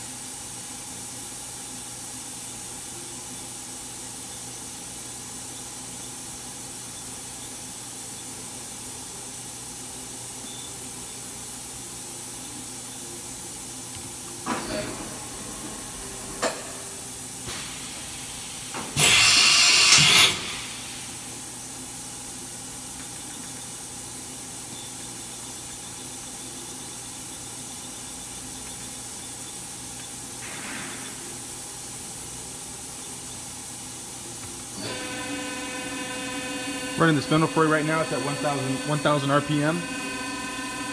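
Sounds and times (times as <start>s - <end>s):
machine running hiss: 0.0s - 40.9s
compressed air rush: 34.8s - 40.9s.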